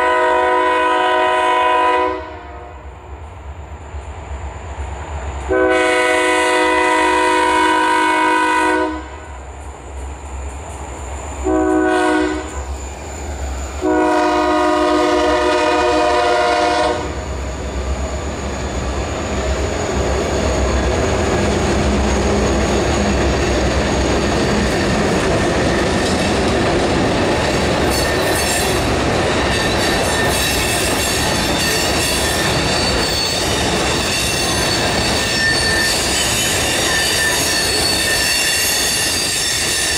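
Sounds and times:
locomotive air horn blasts: 0.0 - 2.8, 5.5 - 9.3, 11.4 - 12.6, 13.8 - 17.2.

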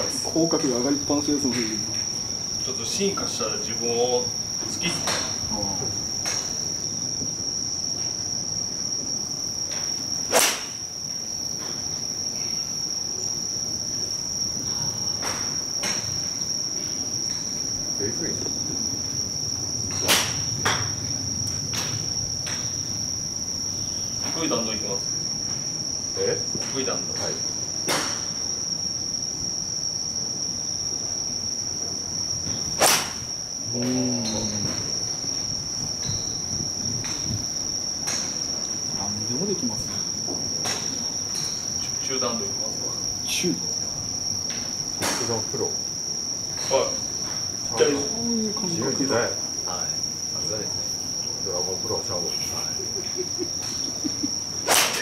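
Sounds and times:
insects trilling: 0.0 - 55.0
golf club striking ball: 10.3 - 10.8.

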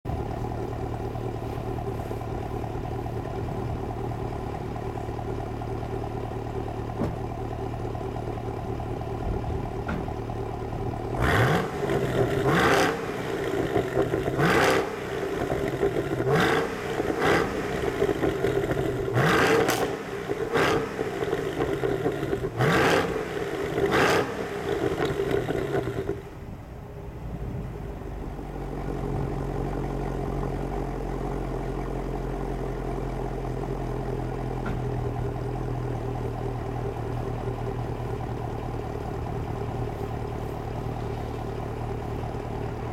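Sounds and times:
car engine idling: 0.0 - 42.9
engine revving: 11.0 - 26.2.

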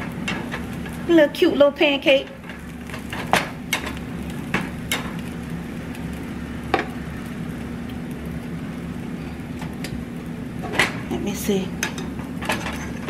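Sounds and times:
pancake sizzling in pan: 0.0 - 13.0.

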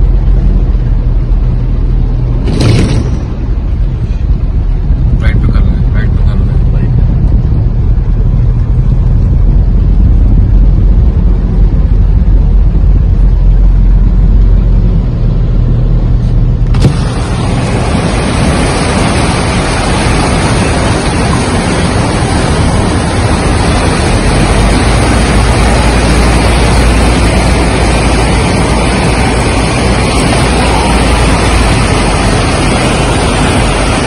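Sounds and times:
vehicle driving through floodwater: 0.0 - 34.0
wind buffeting microphone: 0.0 - 34.0
rain and moving floodwater: 16.7 - 34.0.

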